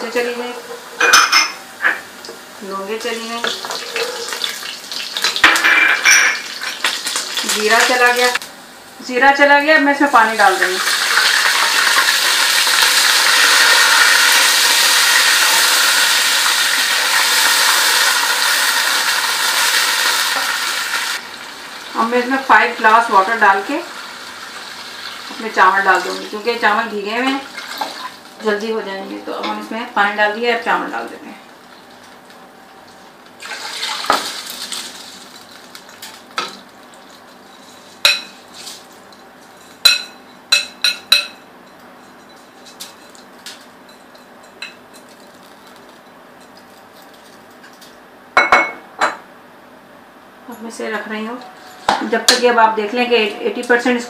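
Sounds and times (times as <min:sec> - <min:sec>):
oil sizzling in a pot: 0:00.0 - 0:08.4, 0:10.0 - 0:28.6, 0:33.4 - 0:38.8.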